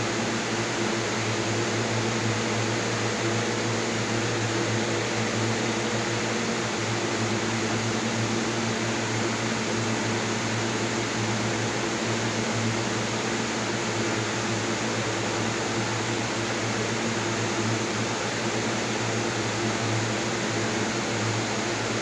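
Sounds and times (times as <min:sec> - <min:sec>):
steady low hum: 0:00.0 - 0:06.6.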